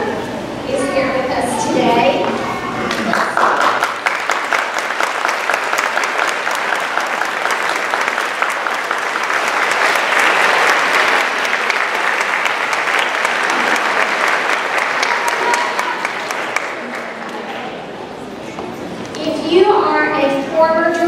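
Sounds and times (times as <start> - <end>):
audience applauding: 2.9 - 17.5.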